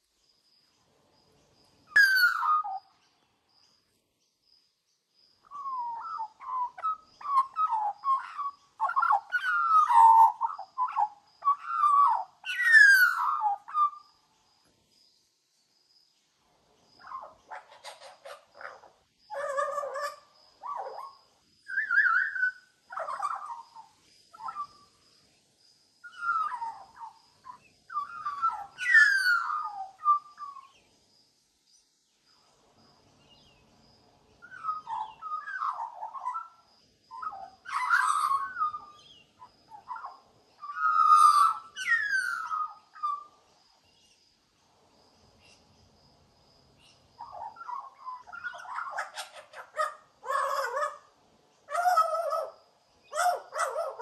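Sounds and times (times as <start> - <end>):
magpie singing: 1.9 - 2.9, 5.5 - 14.0, 21.7 - 24.8, 26.1 - 30.7, 34.4 - 43.3, 47.2 - 51.1.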